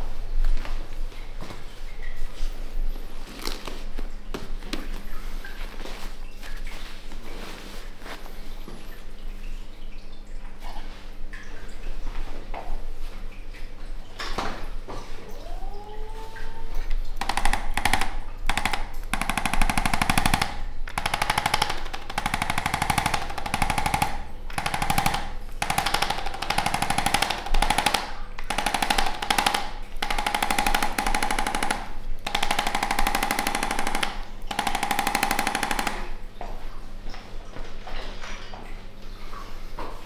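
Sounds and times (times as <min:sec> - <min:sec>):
electric massager rattling: 0:17.2 - 0:36.2.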